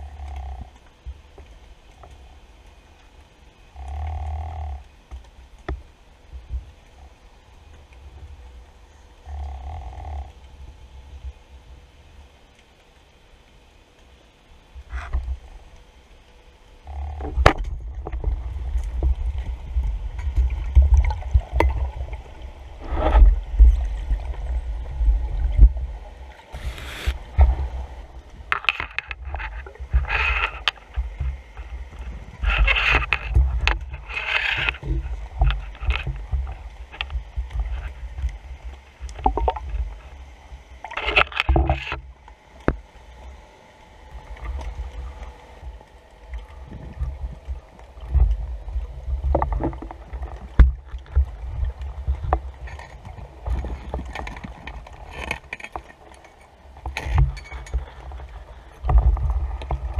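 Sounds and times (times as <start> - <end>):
underwater water rumble: 14.5 - 59.9
short hissing rushes: 26.6 - 27.3.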